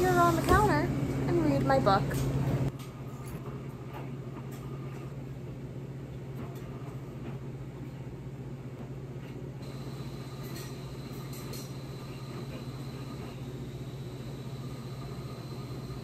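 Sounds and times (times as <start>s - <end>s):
washing machines humming and rumbling: 0.0s - 16.0s
faint high whine: 9.6s - 16.0s.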